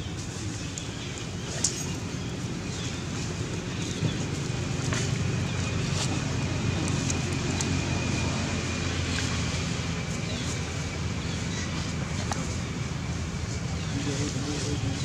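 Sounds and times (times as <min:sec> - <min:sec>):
low mechanical drone: 0:00.0 - 0:15.0.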